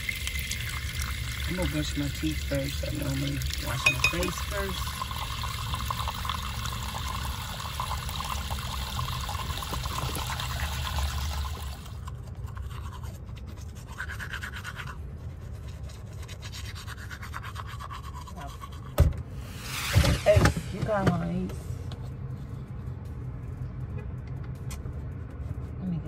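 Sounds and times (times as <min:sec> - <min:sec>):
faucet running into sink: 0:00.0 - 0:12.0
toothbrush scrubbing teeth: 0:00.7 - 0:04.8, 0:11.9 - 0:19.0.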